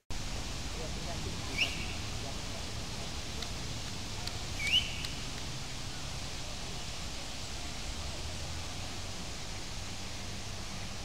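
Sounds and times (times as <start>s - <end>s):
waterfall rushing: 0.2s - 11.0s
bird whistle: 1.5s - 2.0s, 4.6s - 5.2s.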